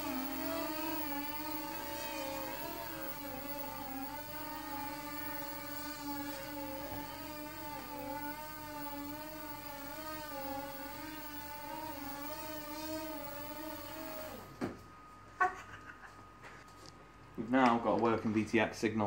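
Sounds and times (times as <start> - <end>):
electric motors and propellers whining: 0.0 - 16.0.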